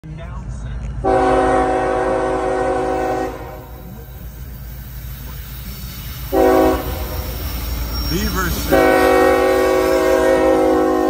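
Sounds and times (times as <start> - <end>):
locomotive air horn: 1.0 - 4.0, 6.2 - 7.3, 8.2 - 11.0.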